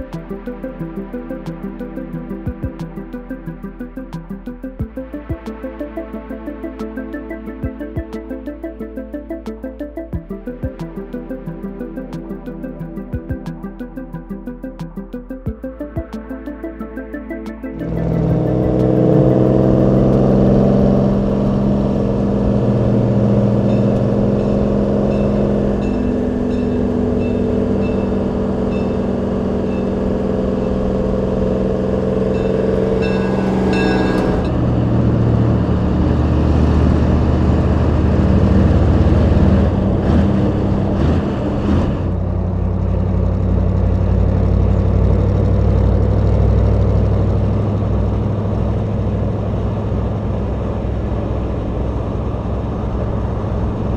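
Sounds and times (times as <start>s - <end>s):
truck engines cruising: 17.7s - 53.9s.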